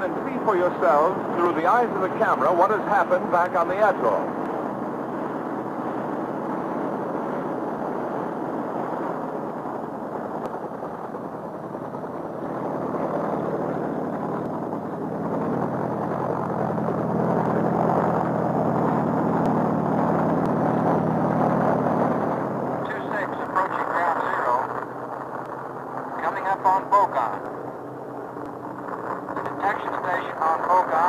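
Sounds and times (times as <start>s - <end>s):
helicopter engine and rotor: 0.0s - 31.0s.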